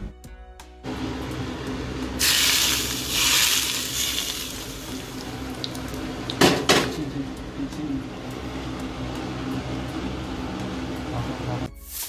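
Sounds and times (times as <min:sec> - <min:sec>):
steady low hum: 0:03.9 - 0:11.7.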